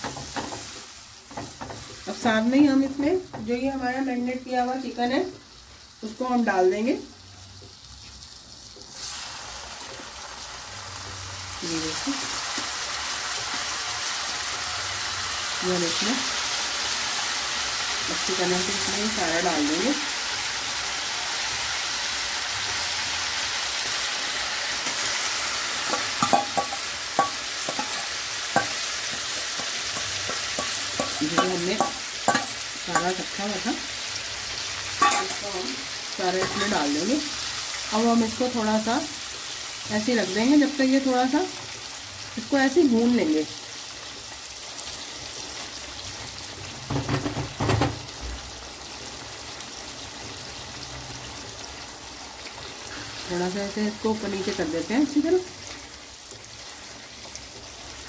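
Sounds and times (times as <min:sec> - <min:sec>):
chicken sizzling in oil: 0:00.0 - 0:58.0
spoon clinking on steel bowl: 0:25.9 - 0:28.0, 0:29.9 - 0:33.2, 0:35.0 - 0:35.4.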